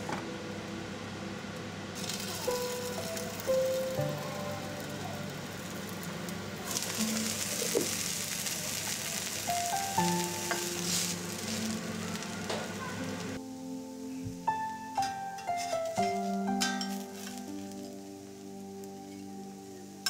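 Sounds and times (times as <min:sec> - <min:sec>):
fritters sizzling in hot oil: 0:02.0 - 0:13.4, 0:15.6 - 0:20.0.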